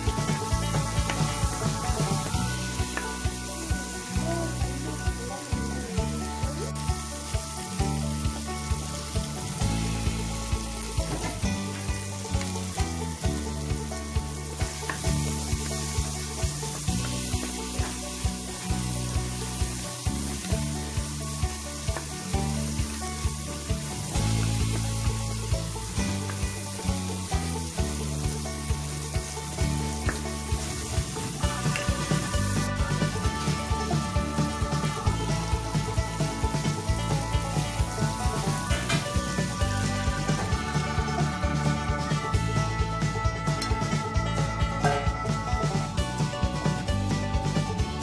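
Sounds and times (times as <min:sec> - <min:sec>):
background music with steady beat: 0:00.0 - 0:48.0
vegetables sizzling in oil: 0:00.0 - 0:48.0.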